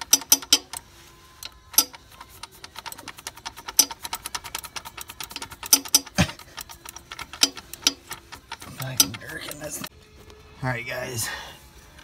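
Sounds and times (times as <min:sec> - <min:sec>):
socket ratchet clicking: 0:00.0 - 0:00.8, 0:01.4 - 0:09.8.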